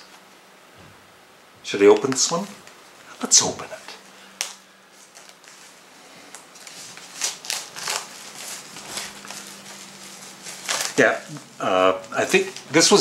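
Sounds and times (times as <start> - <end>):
faint steady hum: 0.0 - 13.0
plastic wrapping crinkling and tearing: 4.4 - 13.0.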